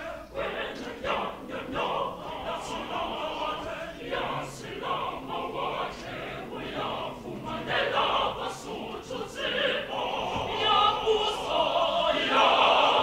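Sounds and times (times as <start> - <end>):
mixed choir singing: 0.0 - 13.0.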